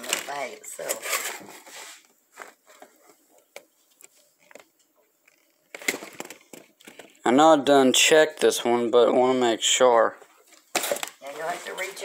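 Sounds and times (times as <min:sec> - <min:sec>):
hands rummaging plastic bags: 0:00.0 - 0:01.7, 0:10.5 - 0:12.0.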